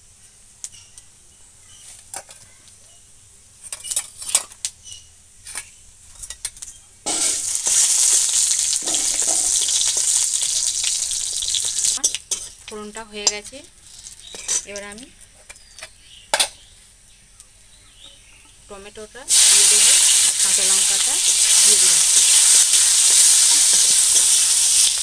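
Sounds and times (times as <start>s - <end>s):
spices crackling and popping in oil: 3.7s - 25.0s
loud steady sizzle: 6.2s - 17.8s, 18.6s - 25.0s.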